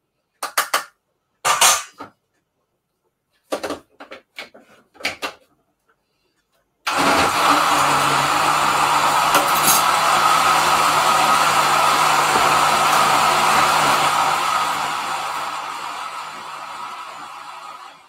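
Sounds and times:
blender motor running: 6.9s - 18.0s.

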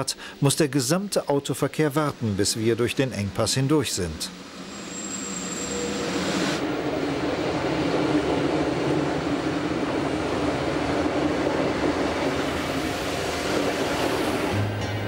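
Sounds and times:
train wheels rumbling on rails: 4.4s - 15.0s.

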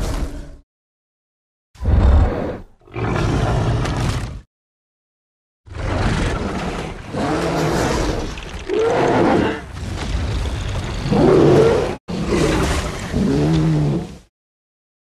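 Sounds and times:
deep monster roars: 11.0s - 14.3s.

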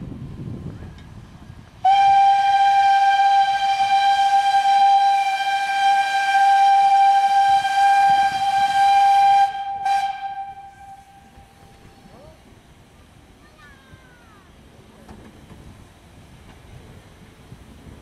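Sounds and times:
steam whistle blast: 1.8s - 11.4s.

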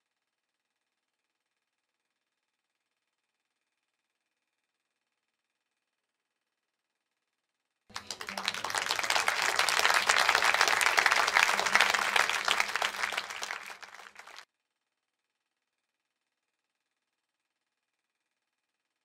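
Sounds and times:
crowd applauding: 7.9s - 14.4s.

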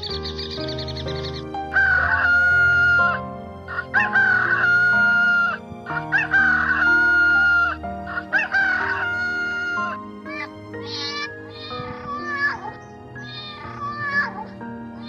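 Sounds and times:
background music: 0.0s - 15.0s
rooster crowing: 1.7s - 12.5s.

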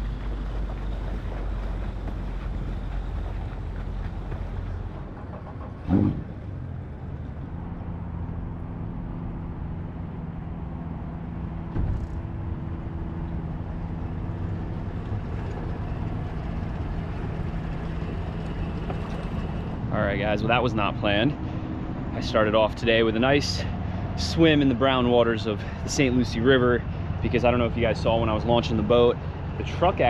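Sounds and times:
boat motor idling: 0.0s - 7.8s, 12.4s - 30.0s.

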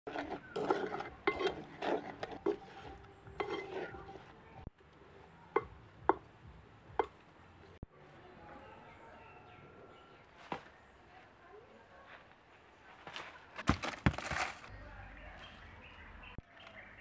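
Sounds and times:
utensils clinking against dishes: 0.1s - 2.8s.

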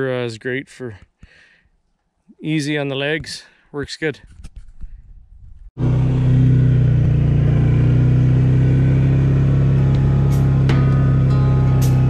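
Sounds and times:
atv engine running: 5.8s - 12.0s
guitar music: 6.8s - 12.0s.

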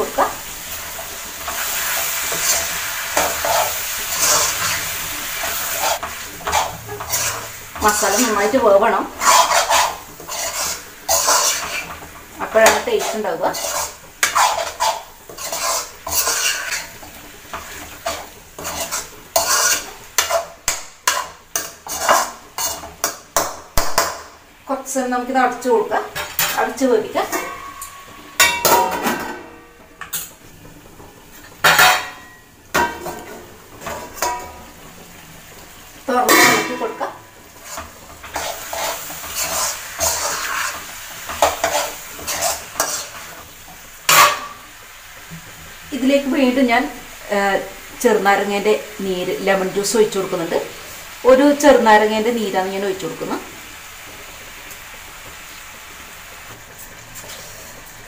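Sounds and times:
sauce sizzling: 0.0s - 58.0s
spatula scraping metal pan: 1.4s - 24.1s, 36.2s - 43.4s
spatula clanking against pan: 12.6s - 16.9s, 17.5s - 24.3s, 26.2s - 30.3s, 31.6s - 34.6s, 44.1s - 44.6s.

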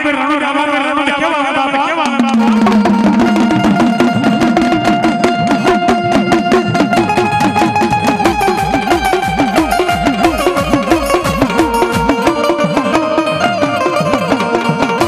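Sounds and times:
fast hand drumming: 2.1s - 15.0s.

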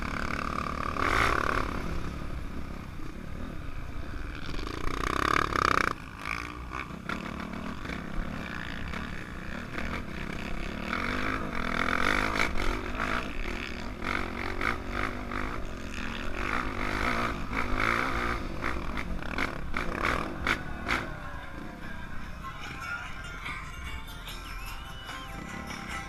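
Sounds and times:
dirt bike engine revving: 4.4s - 22.8s.

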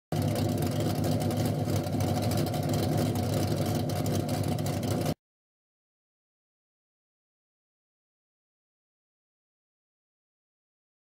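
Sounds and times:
car engine running: 0.1s - 5.2s.

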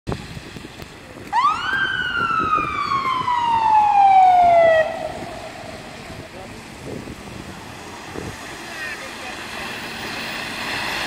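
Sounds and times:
fire engine siren wail: 1.3s - 6.4s
passing traffic hiss: 4.2s - 11.0s.

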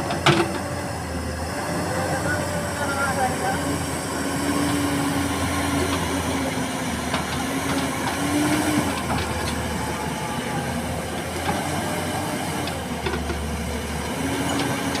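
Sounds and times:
excavator diesel engine: 0.0s - 15.0s.

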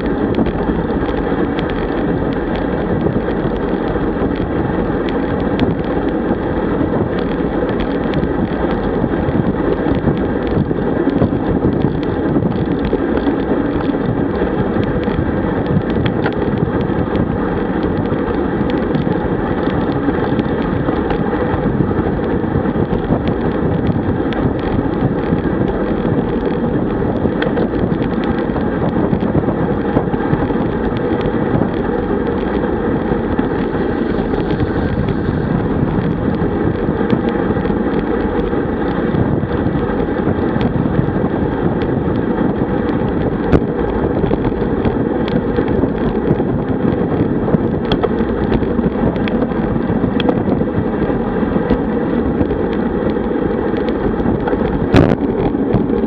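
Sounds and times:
bicycle road noise: 0.0s - 56.0s
wind rush on microphone: 0.0s - 56.0s.

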